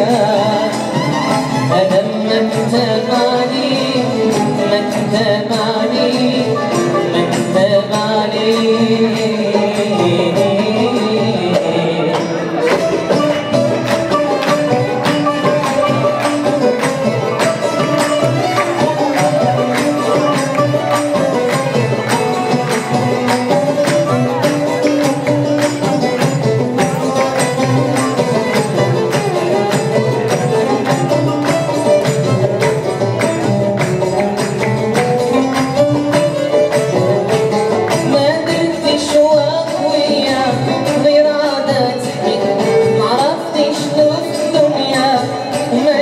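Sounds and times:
banjo: 0:00.0 - 0:46.0
darbuka beat: 0:00.0 - 0:46.0
oud: 0:00.0 - 0:46.0
violin: 0:00.0 - 0:46.0.

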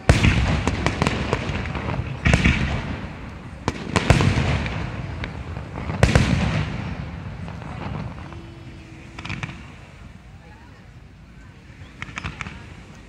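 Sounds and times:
firework shells booming: 0:00.0 - 0:10.1, 0:11.9 - 0:12.9
rumbling echo: 0:00.0 - 0:10.4.

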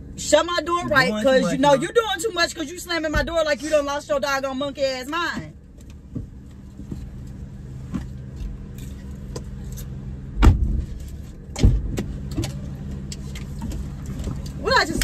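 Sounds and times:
vehicle engine idling: 0:00.0 - 0:15.0
car door slamming: 0:10.4 - 0:12.6.

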